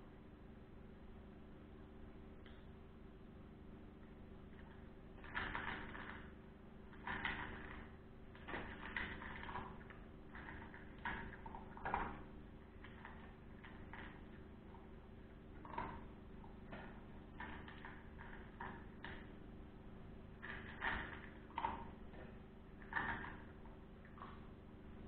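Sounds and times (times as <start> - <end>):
dog crunching dry kibble: 4.5 - 6.2, 6.9 - 19.2, 22.8 - 24.4.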